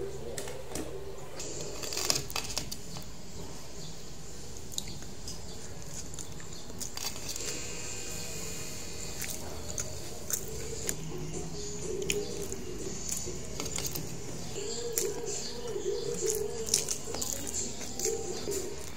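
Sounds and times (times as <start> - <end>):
low steady hum: 0.0 - 18.9
chewing: 4.7 - 18.9.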